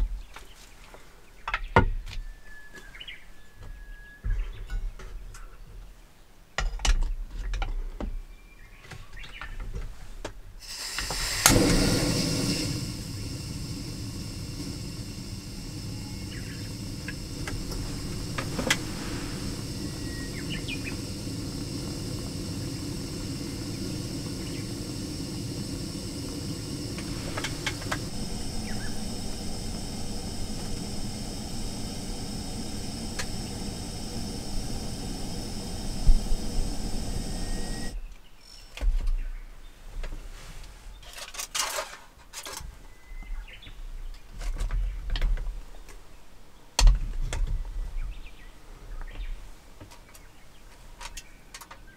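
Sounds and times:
steady rushing hiss: 10.6s - 38.1s.

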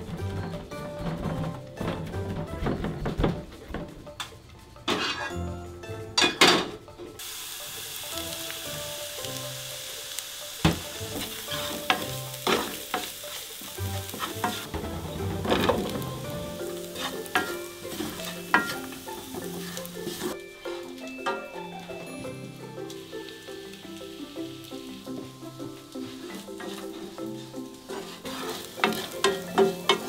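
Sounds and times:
wooden spoon knocking a pan: 0.0s - 4.2s, 10.6s - 20.3s, 25.1s - 30.0s
oil sizzling in a frying pan: 7.2s - 30.0s.

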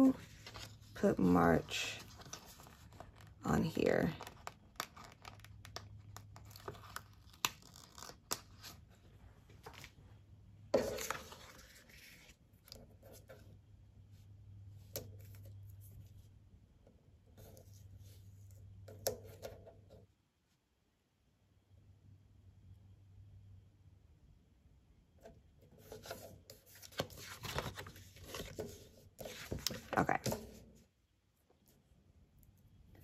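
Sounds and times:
paper rustling: 0.0s - 10.0s, 10.8s - 13.5s, 25.8s - 30.7s
sticker sheet crinkling and peeling: 0.1s - 8.8s
faint low hum: 8.3s - 33.0s.

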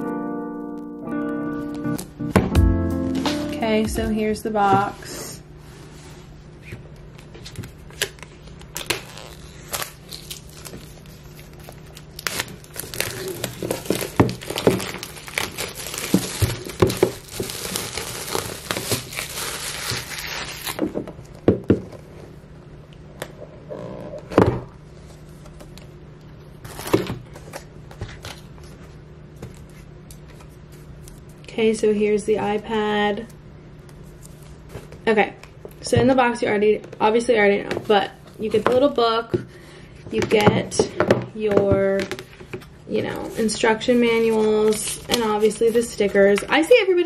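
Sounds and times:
plastic wrap crinkling and tearing: 7.4s - 21.0s, 26.6s - 28.5s, 43.3s - 46.5s.

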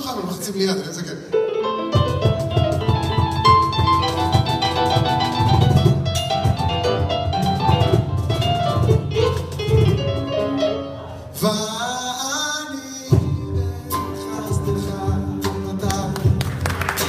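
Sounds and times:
sharp drum hit: 2.0s - 10.4s
hand drums: 2.0s - 10.5s
man singing: 11.2s - 16.6s.

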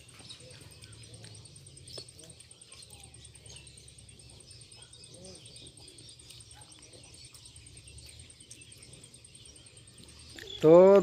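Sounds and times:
small birds chirping: 0.0s - 11.0s.

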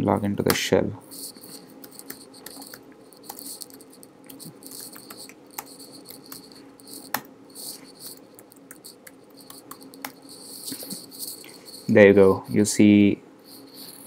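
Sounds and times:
faint steady hum: 0.0s - 14.0s
typing on computer keyboard: 1.8s - 11.4s.

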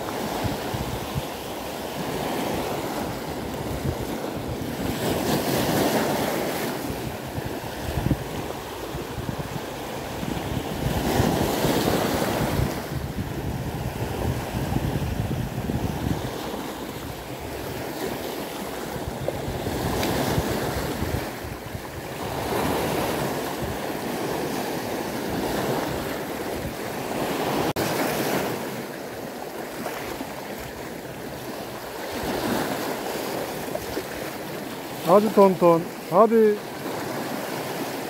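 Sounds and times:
wind buffeting microphone: 0.0s - 1.4s, 2.0s - 18.2s, 18.8s - 27.9s
waves breaking on rocky shore: 0.0s - 38.0s.

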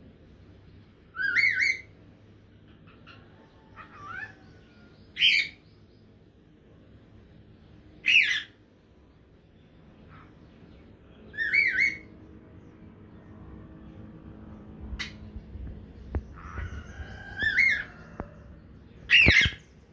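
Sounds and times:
cockatiel whistling calls: 1.1s - 1.9s, 11.3s - 12.1s, 19.1s - 19.6s.

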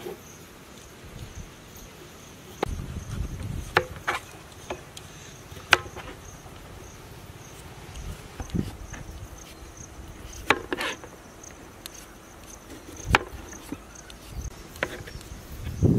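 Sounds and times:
insects chirping: 0.0s - 15.9s
knife slicing potatoes on board: 10.3s - 11.1s.

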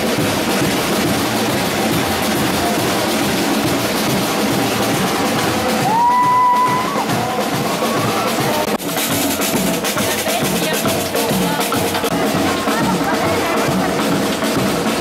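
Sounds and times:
percussion band drumming: 0.0s - 15.0s.

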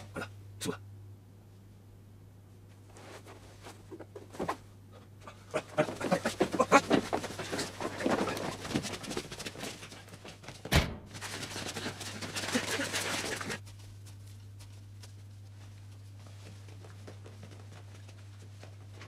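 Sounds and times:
man crying out and panting: 5.2s - 8.5s
scuffling and knocking: 5.6s - 13.6s.

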